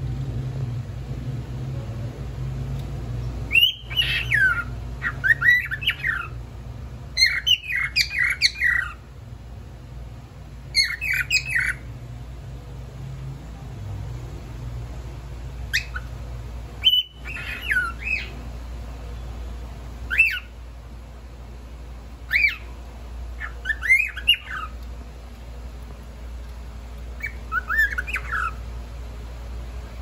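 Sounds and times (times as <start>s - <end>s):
cockatiel shrill whistled calls: 3.5s - 6.3s, 7.2s - 9.0s, 10.7s - 11.8s, 15.7s - 16.1s, 16.8s - 18.3s, 20.1s - 20.5s, 22.3s - 22.7s, 23.4s - 24.7s, 27.2s - 28.6s.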